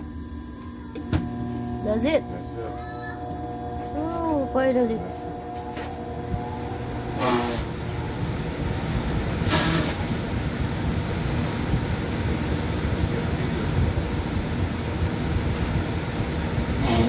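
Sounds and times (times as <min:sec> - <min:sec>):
gas furnace burner rumbling: 0:00.0 - 0:17.0
short hissing: 0:07.2 - 0:07.7, 0:09.5 - 0:10.0.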